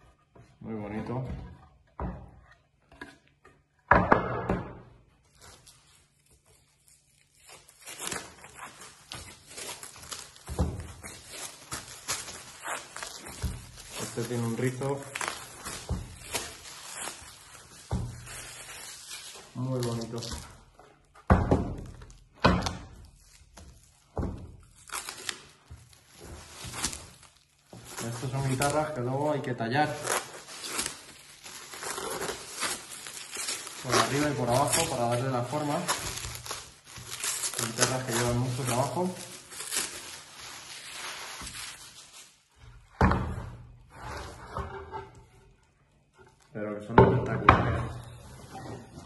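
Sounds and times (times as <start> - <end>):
plastic wrap crinkling and tearing: 5.2 - 21.1, 21.8 - 42.6.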